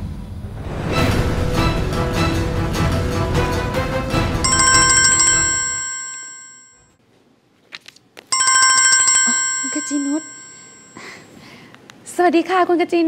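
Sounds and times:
background music: 0.6 - 6.0
phone ringtone chime: 4.4 - 6.9, 8.4 - 11.2.

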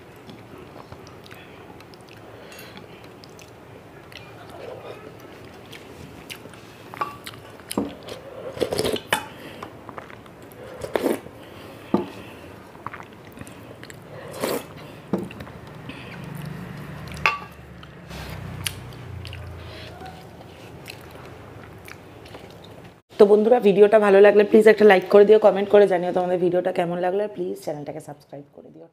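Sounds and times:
chewing: 0.2 - 9.2, 12.2 - 22.9.

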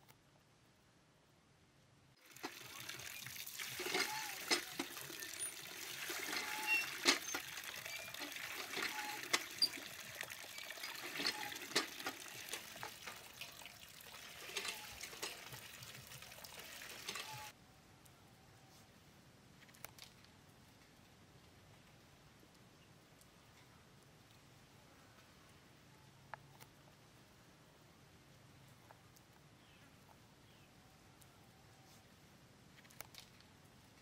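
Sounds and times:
water pouring into steel bowl: 2.2 - 17.5.

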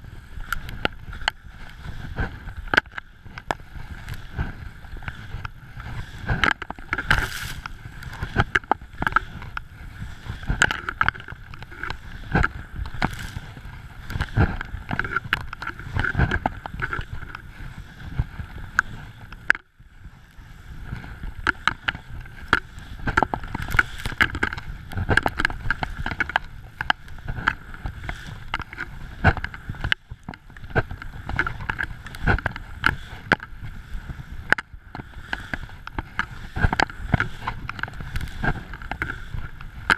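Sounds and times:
skis rushing through snow: 0.0 - 19.3, 35.2 - 39.9
knocks and thumps of skis: 0.0 - 39.9.

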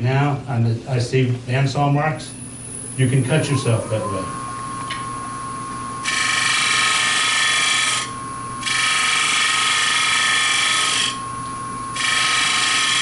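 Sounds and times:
steady high whine: 0.0 - 13.0
gouge cutting wood on a lathe: 6.0 - 11.2, 12.0 - 13.0.

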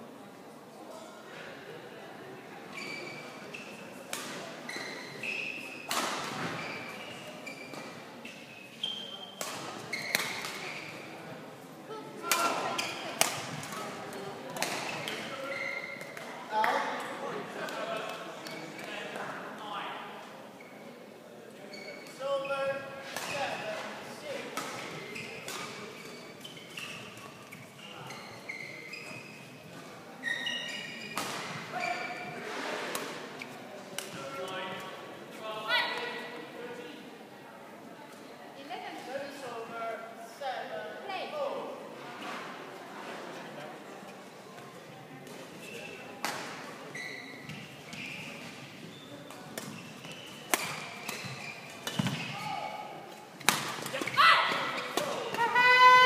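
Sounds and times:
shoes squeaking on court: 2.7 - 11.1, 12.4 - 16.3, 21.7 - 23.8, 24.6 - 34.5, 45.3 - 55.5
racket hitting shuttlecock: 14.6 - 15.2, 49.4 - 52.4, 53.4 - 55.4.

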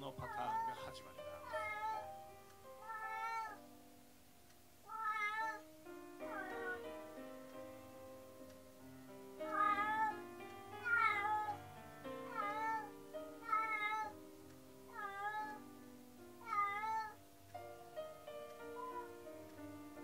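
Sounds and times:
piano background music: 0.0 - 20.0
cat meowing: 0.2 - 2.0, 2.8 - 3.6, 4.8 - 5.6, 6.3 - 6.8, 9.5 - 10.2, 10.8 - 11.6, 12.3 - 14.2, 14.9 - 15.6, 16.4 - 17.2, 18.7 - 19.2.

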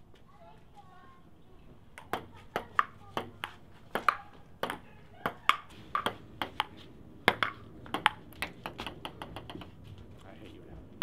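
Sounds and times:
table tennis ball clicking: 2.0 - 9.8.

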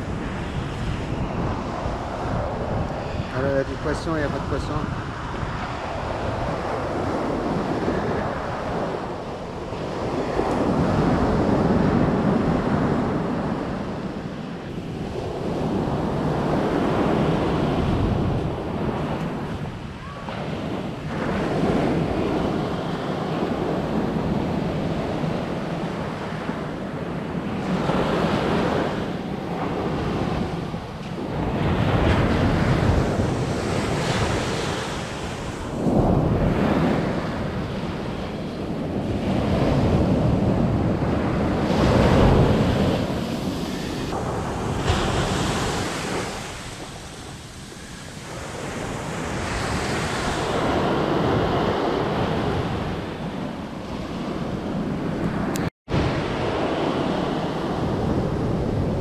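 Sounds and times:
surf breaking on beach: 0.0 - 59.0
wind buffeting microphone: 0.0 - 59.0.

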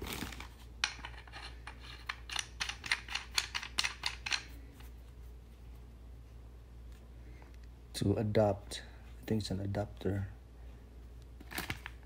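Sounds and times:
metal fitting clicking and scraping: 0.8 - 4.9.

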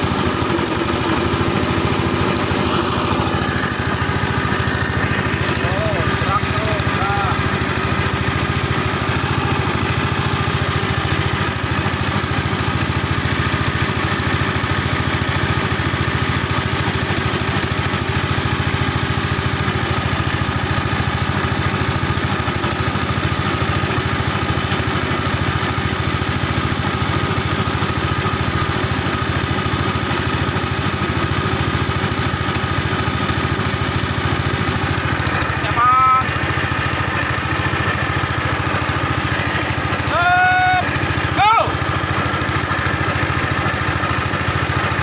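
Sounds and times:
small boat engine running: 0.0 - 45.0.

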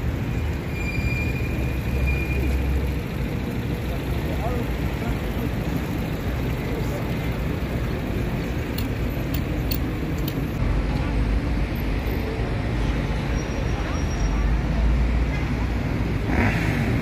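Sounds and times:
road traffic: 0.0 - 17.0
people talking: 3.7 - 7.6, 13.3 - 15.0.

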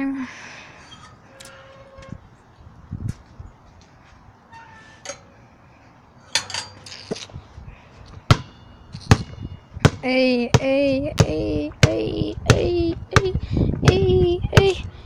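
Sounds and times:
basketball bouncing on concrete: 8.2 - 14.8.

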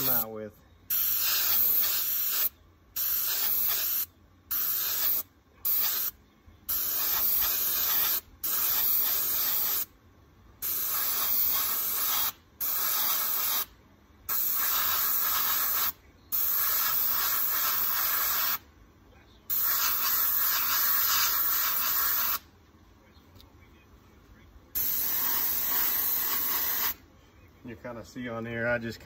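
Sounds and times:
airbrush spraying hissing bursts: 0.0 - 0.3, 0.9 - 9.9, 10.6 - 18.6, 19.5 - 22.5, 24.8 - 27.0.

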